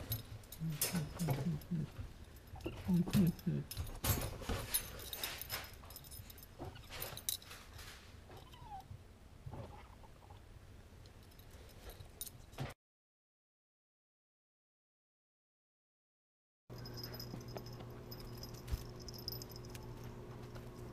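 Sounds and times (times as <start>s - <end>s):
faint animal cry: 8.3s - 8.9s.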